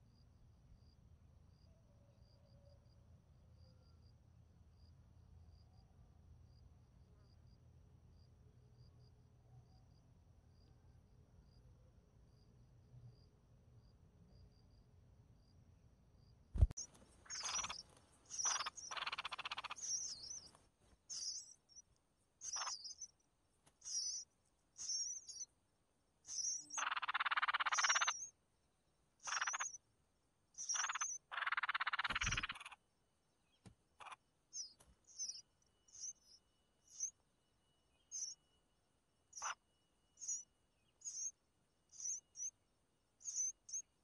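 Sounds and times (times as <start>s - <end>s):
nestlings chirping: 16.6s - 25.5s, 26.2s - 28.3s, 29.2s - 29.8s, 30.6s - 32.8s, 33.5s - 38.6s, 39.3s - 42.6s, 43.2s - 44.0s
raspy begging calls: 17.2s - 20.5s, 26.3s - 28.3s, 29.2s - 29.8s, 30.6s - 32.8s.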